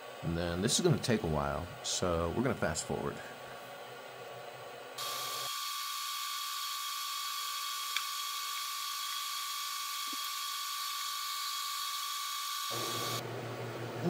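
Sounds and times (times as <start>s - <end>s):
printer high whine: 5.0s - 13.2s.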